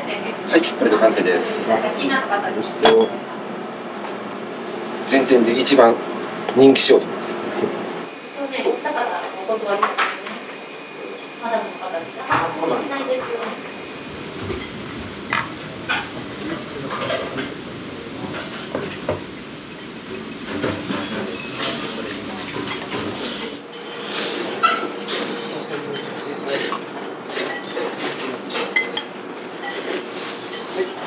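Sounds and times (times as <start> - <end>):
low rumble: 13.7 - 21.4
steady hiss: 13.7 - 26.8
metal pans and utensils clattering: 18.2 - 24.0.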